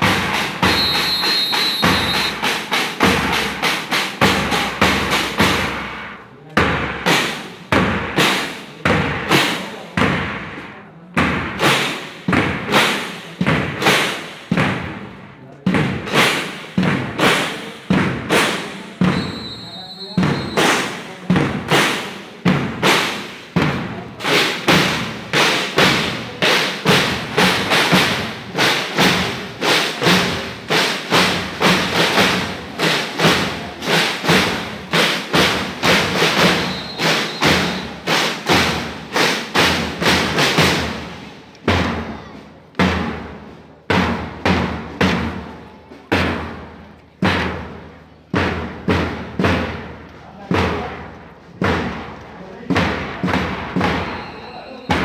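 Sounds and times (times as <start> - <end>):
marching snare and bass drums: 0.0 - 55.0.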